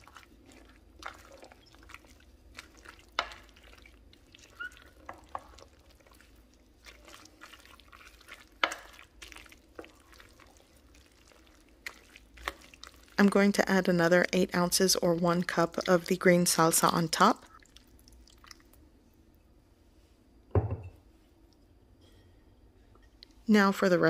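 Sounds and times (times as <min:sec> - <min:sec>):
spoon stirring thick food: 0:00.0 - 0:13.5.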